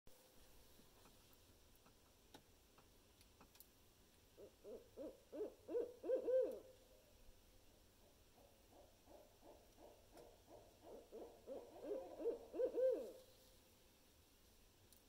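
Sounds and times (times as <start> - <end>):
owl hooting: 4.4 - 6.7, 8.4 - 13.2.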